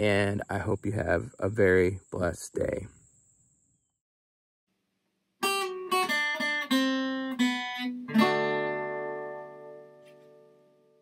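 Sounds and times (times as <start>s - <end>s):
acoustic guitar notes: 5.4s - 11.0s.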